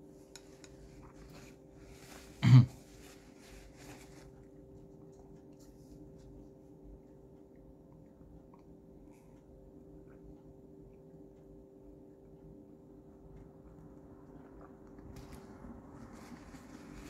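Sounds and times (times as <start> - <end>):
throat clearing: 2.4 - 2.9.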